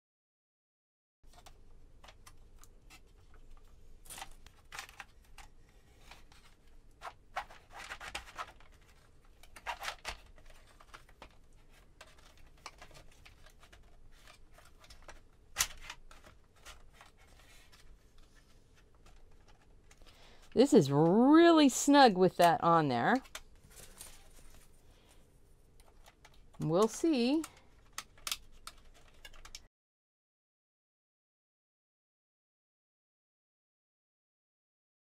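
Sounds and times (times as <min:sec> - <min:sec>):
plastic parts clicking and scraping: 0:01.3 - 0:20.6, 0:23.1 - 0:29.7.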